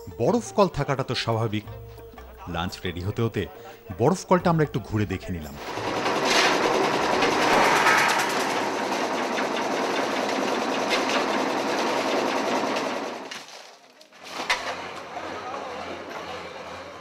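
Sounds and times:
ice crushing machine rattling: 0:05.6 - 0:15.0.

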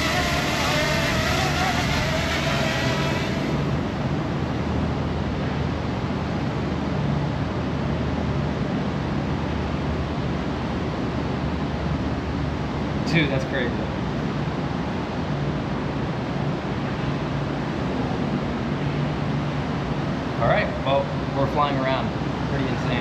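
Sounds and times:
drone propellers whining: 0:00.0 - 0:04.3
wind noise on microphone: 0:00.0 - 0:05.0
low hum: 0:00.0 - 0:06.0.

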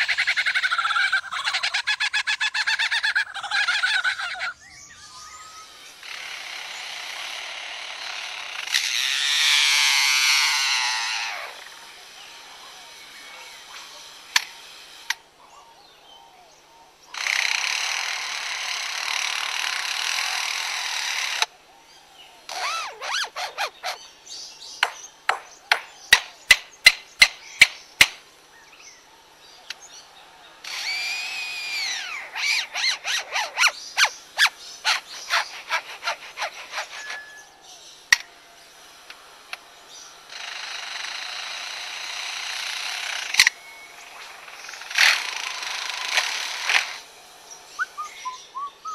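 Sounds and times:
bird mimicking chainsaw buzz: 0:00.0 - 0:15.2, 0:17.1 - 0:21.5, 0:22.4 - 0:28.0, 0:30.6 - 0:48.9
bird whining: 0:22.4 - 0:24.2, 0:30.7 - 0:37.7, 0:47.7 - 0:48.9.

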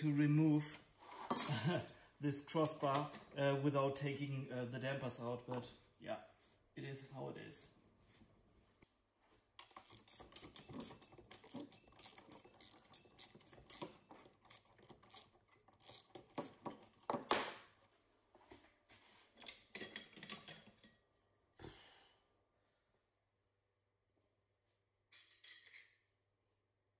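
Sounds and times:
metal tools clinking: 0:01.3 - 0:01.9, 0:09.6 - 0:17.3.

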